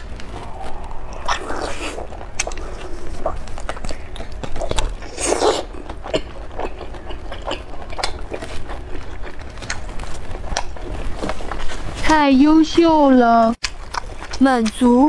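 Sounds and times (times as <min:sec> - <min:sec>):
person chewing: 0:00.0 - 0:12.0, 0:13.6 - 0:15.0
wet mouth smacks and clicks: 0:13.6 - 0:14.8.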